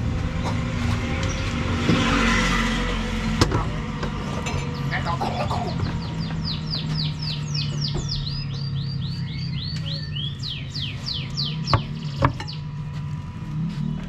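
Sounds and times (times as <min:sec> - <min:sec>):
steady low hum: 0:00.0 - 0:14.0
songbird chirping: 0:04.6 - 0:12.9.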